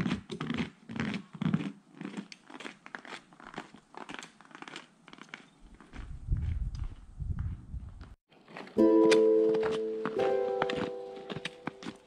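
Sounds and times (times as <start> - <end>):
footsteps crunching in snow: 8.8 - 12.0.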